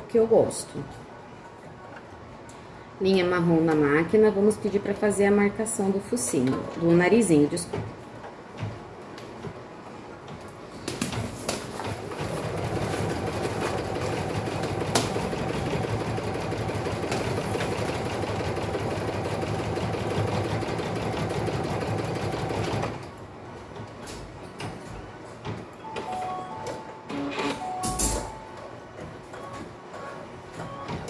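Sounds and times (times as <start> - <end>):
embroidery machine stitching: 12.0 - 23.0.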